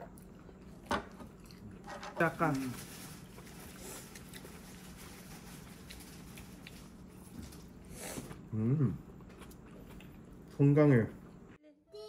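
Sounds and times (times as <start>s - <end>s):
person humming mm: 8.5s - 9.0s.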